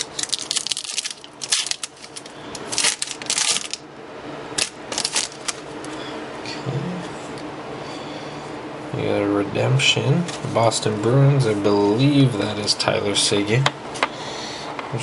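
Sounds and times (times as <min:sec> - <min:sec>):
cards rustling: 0:00.0 - 0:03.8, 0:04.6 - 0:06.0
foil wrappers crinkling: 0:00.0 - 0:03.8, 0:04.6 - 0:06.0.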